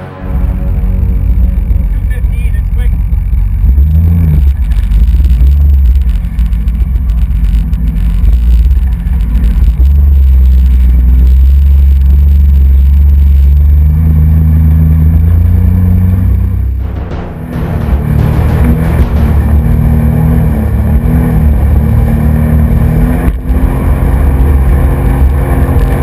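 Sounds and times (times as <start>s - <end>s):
jet ski engine rumble: 0.0s - 15.7s.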